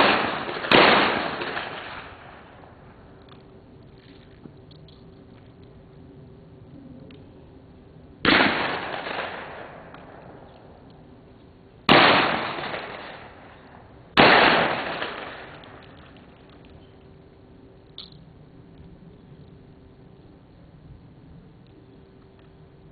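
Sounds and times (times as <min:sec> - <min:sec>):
shotgun shots: 0:00.0 - 0:02.5, 0:08.2 - 0:10.2, 0:11.9 - 0:13.6, 0:14.2 - 0:16.0.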